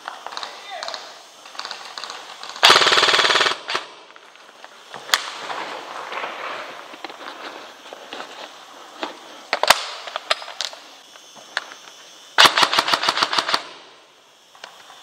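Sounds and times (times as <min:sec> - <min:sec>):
airsoft gun full-auto burst: 0:00.0 - 0:04.1, 0:12.4 - 0:14.0.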